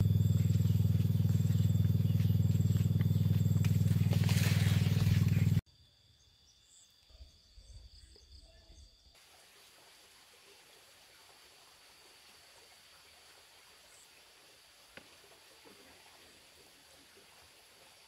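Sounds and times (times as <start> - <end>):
loud low pulsing drone: 0.0 - 5.6
faint outdoor background: 0.0 - 18.0.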